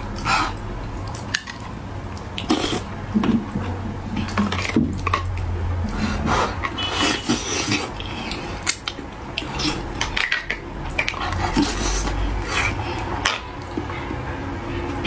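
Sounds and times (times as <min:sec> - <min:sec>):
slurping and chewing: 0:00.0 - 0:15.0.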